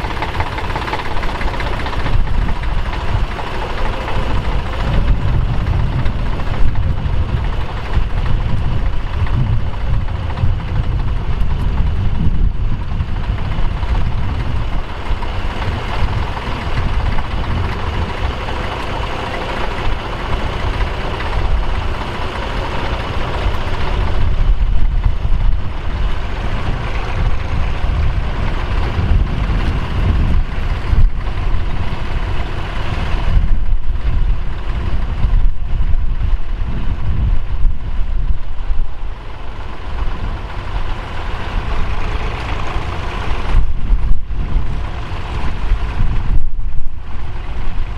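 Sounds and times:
tractor diesel engine running: 0:00.0 - 0:47.9.

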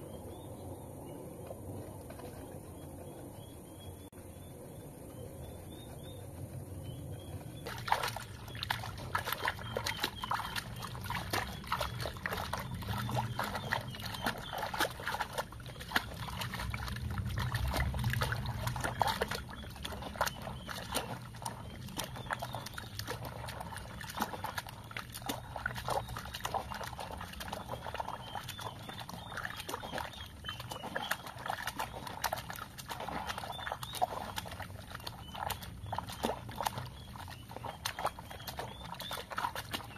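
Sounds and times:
water splashing and sloshing: 0:00.0 - 0:04.4, 0:05.1 - 0:39.9
birdsong: 0:00.0 - 0:39.9.

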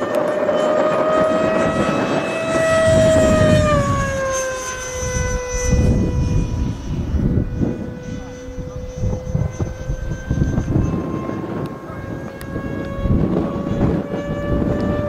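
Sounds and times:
electric ducted fan whining: 0:00.0 - 0:15.0.

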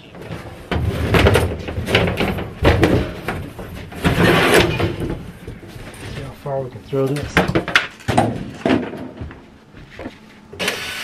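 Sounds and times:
wooden panels crashing and scraping: 0:00.2 - 0:06.3, 0:07.1 - 0:09.2.

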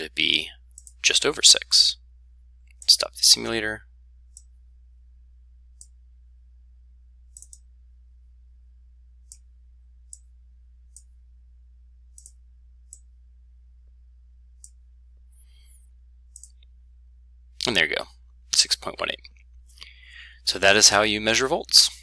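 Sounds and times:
faint low hum: 0:00.0 - 0:22.0
computer mouse clicking: 0:00.7 - 0:01.0, 0:04.3 - 0:04.5, 0:07.3 - 0:07.7, 0:09.2 - 0:09.5, 0:10.9 - 0:11.1, 0:12.1 - 0:13.1, 0:14.6 - 0:14.8, 0:16.3 - 0:16.7.

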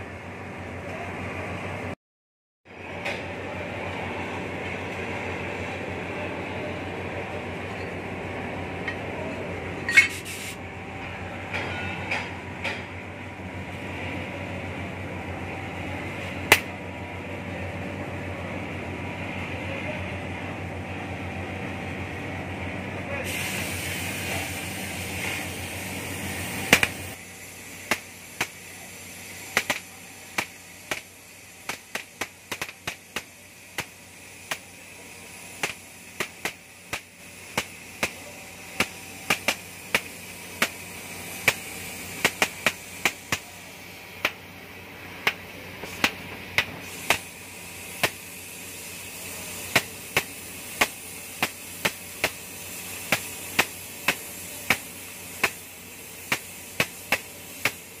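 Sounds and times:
cutting torch hissing: 0:09.9 - 0:10.6, 0:23.2 - 0:58.0
sharp pops and crackles: 0:26.7 - 0:27.0, 0:27.8 - 0:28.6, 0:29.5 - 0:34.8, 0:35.6 - 0:38.2, 0:38.8 - 0:43.5, 0:44.2 - 0:44.5, 0:45.2 - 0:48.3, 0:49.7 - 0:58.0.

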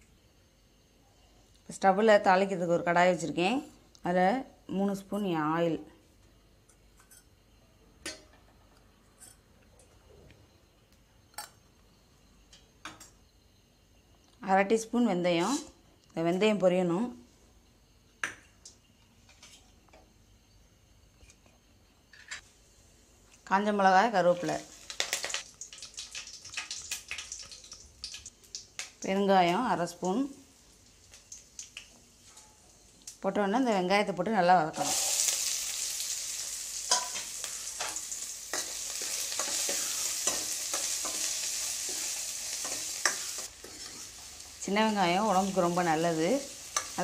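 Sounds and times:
seeds clicking in hot oil: 0:24.2 - 0:33.2, 0:34.8 - 0:47.0.

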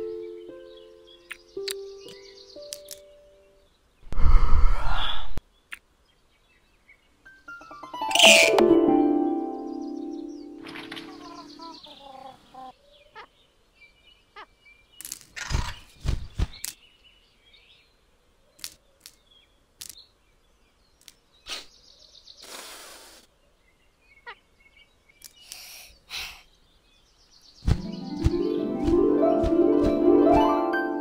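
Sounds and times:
light cartoon clicks and taps: 0:01.3 - 0:03.1
short whooshing rush: 0:04.1 - 0:05.4.

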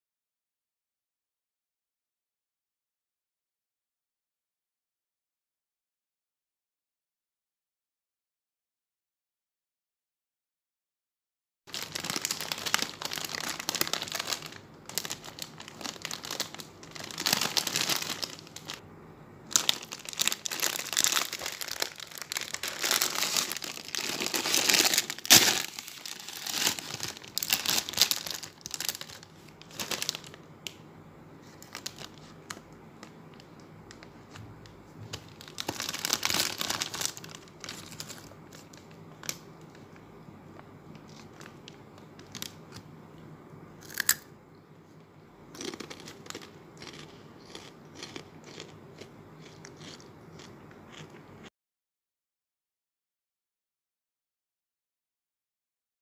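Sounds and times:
bag tearing open: 0:11.7 - 0:18.8, 0:19.5 - 0:30.3, 0:35.4 - 0:38.3
snack bag crinkling: 0:11.7 - 0:18.8, 0:19.5 - 0:30.5, 0:31.4 - 0:34.4, 0:35.1 - 0:40.0, 0:40.9 - 0:42.8, 0:43.8 - 0:44.2, 0:45.5 - 0:51.2.

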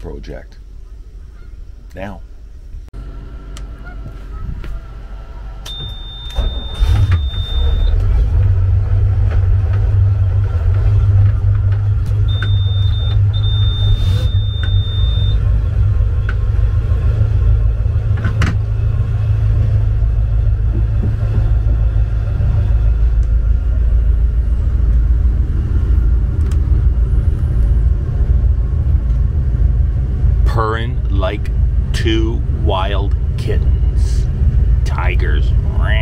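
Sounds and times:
boat engine starting and idling: 0:03.0 - 0:36.0
high warning buzzer: 0:05.7 - 0:08.0, 0:12.2 - 0:15.5.

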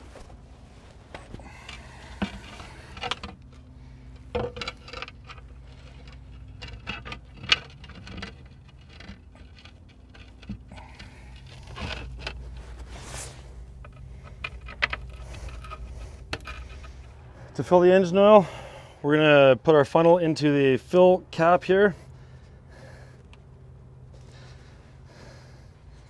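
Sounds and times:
steady low hum: 0:00.0 - 0:26.0
knocks and clicks of hand tools: 0:04.2 - 0:05.4.

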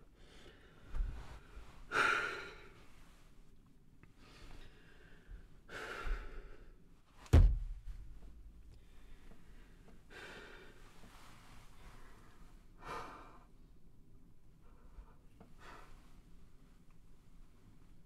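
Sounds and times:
sharp thump: 0:07.3 - 0:08.0.

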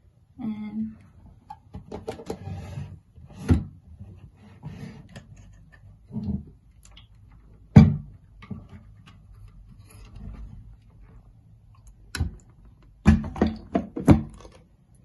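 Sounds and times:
plastic clicks and knocks: 0:01.5 - 0:02.4.

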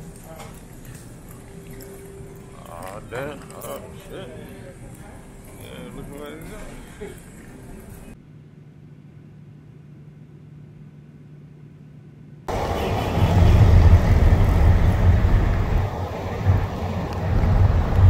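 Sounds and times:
airliner cabin drone: 0:12.5 - 0:18.0
wind buffeting microphone: 0:12.5 - 0:18.0.

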